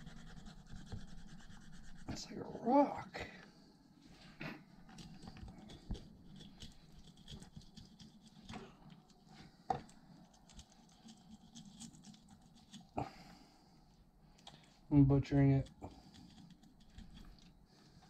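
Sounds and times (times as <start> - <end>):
knife cutting and scraping fish: 0.0 - 2.1, 4.8 - 13.1, 15.6 - 18.0.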